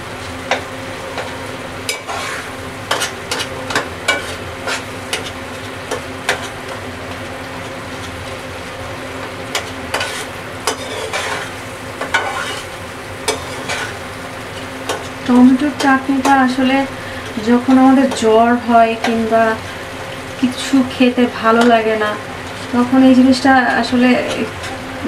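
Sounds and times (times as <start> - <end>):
sauce sizzling: 0.0 - 25.0
spatula scraping metal pot: 1.9 - 5.3, 9.9 - 12.7.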